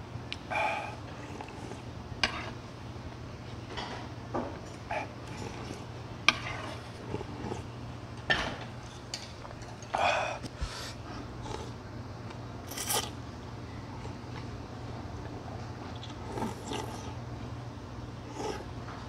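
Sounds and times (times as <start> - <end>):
slurping noodles: 12.7 - 13.2, 16.0 - 17.2, 18.3 - 18.7.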